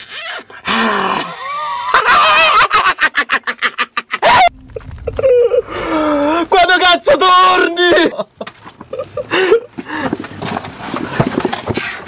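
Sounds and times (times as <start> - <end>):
man yelling: 6.5 - 8.2.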